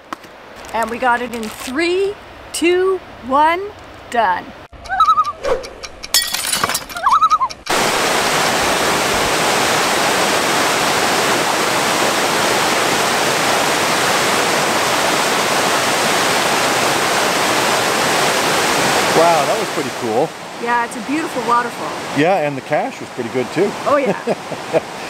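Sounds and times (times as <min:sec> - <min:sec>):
waterfall rushing over rock: 0:07.7 - 0:25.0.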